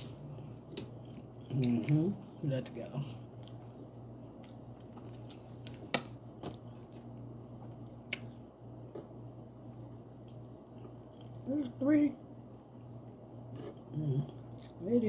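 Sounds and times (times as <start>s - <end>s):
low hum: 0.0s - 15.0s
person chewing food: 3.2s - 11.5s.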